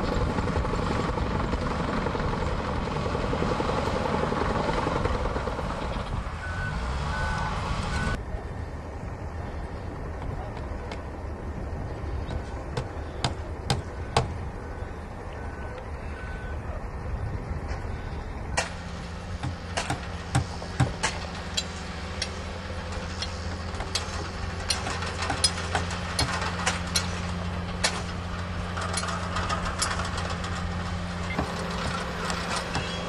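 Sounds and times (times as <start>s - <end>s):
diesel engine of roller compactor: 0.0s - 33.0s
sharp metallic clanks and knocks: 18.6s - 33.0s.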